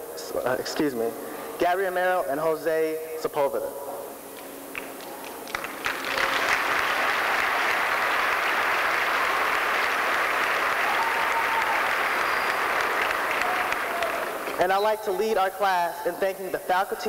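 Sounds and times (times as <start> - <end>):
crowd applauding: 4.8 - 14.6.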